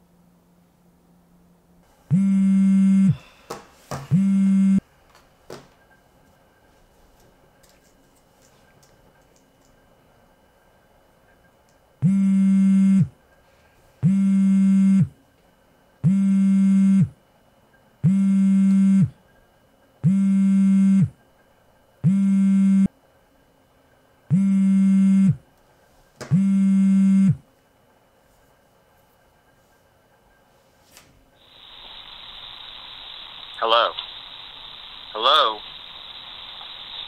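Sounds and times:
phone buzzing on vibrate: 2.1 - 3.3, 4.1 - 4.8, 12.0 - 13.2, 14.0 - 15.2, 16.0 - 17.2, 18.0 - 19.2, 20.0 - 21.2, 22.0 - 22.9, 24.3 - 25.4, 26.3 - 27.4.

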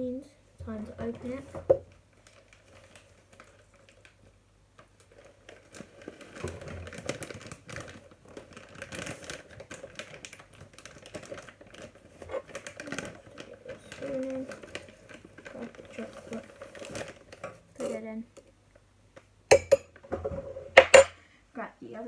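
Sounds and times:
packet crinkling and rustling: 2.1 - 18.0.

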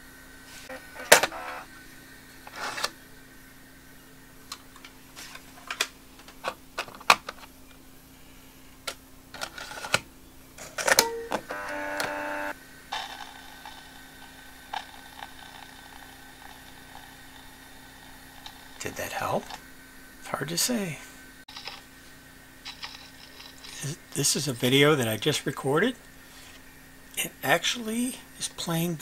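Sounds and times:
faint tape whir: 0.0 - 29.0
camcorder buzzing: 0.7 - 1.7, 11.0 - 14.0
cassette clicks and clunks: 10.8 - 12.3.

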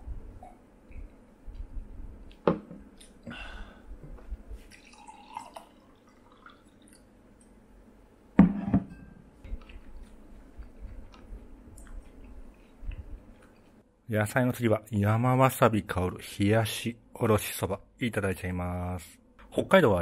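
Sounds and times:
liquid trickling into glass: 4.7 - 7.2
glass knocked onto table: 8.4 - 9.2.

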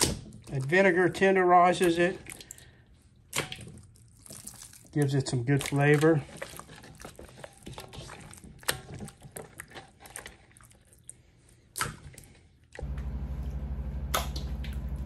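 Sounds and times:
wet squishing of meat in marinade: 0.0 - 12.9
steady low hum: 12.8 - 15.0.

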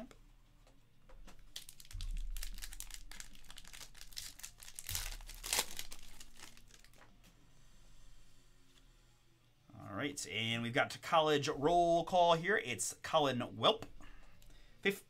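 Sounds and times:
foil wrapper crinkling: 1.4 - 7.0.

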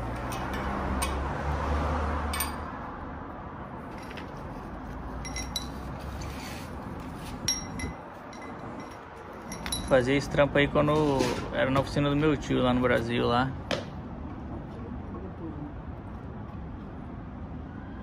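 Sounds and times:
metal parts clinking: 5.2 - 5.9, 7.4 - 10.1.

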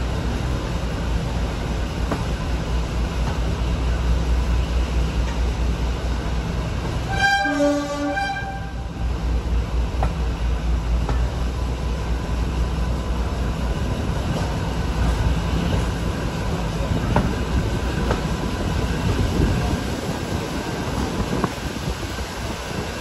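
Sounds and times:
train rumbling: 0.0 - 23.0
train horn: 7.0 - 9.0.

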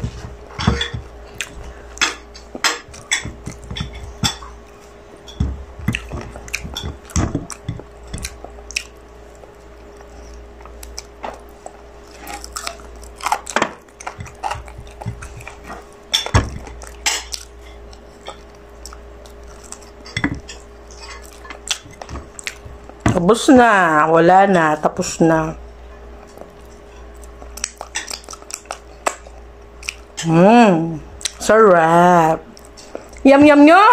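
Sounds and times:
faint steady hum: 0.0 - 33.9
chewing and biting chicken: 1.2 - 23.0, 26.1 - 30.3.

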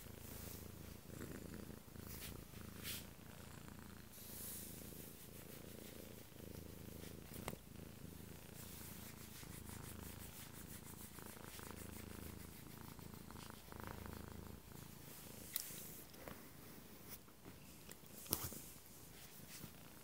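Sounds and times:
cat purring: 0.0 - 20.0.

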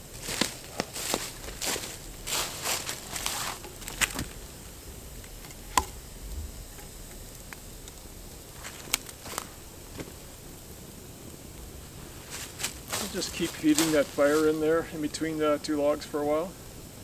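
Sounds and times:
footsteps on dry leaves: 0.0 - 4.8, 8.5 - 10.3, 11.8 - 14.8.

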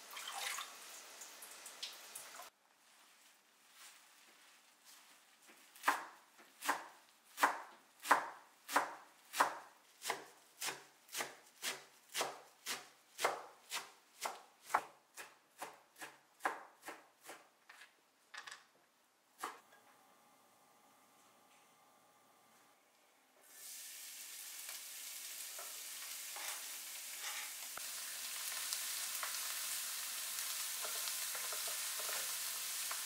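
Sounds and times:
knife chopping herbs on wood: 5.8 - 17.5.

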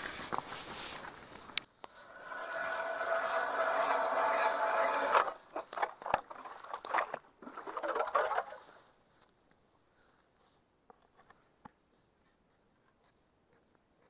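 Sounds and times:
ice auger grinding: 1.9 - 8.8
ice chips crunching and scraping: 2.2 - 8.7.

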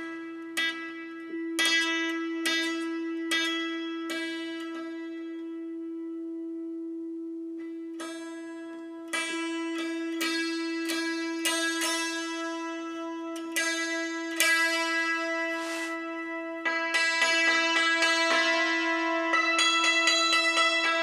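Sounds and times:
santoor strings struck with hammer: 0.0 - 6.0, 7.6 - 21.0.

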